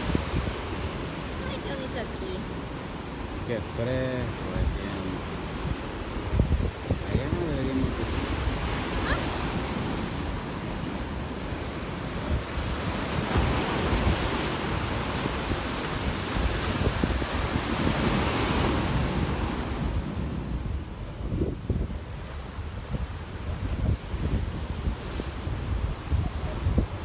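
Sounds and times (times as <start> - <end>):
surf breaking on rocks: 0.0 - 20.7
wind buffeting microphone: 0.0 - 27.0.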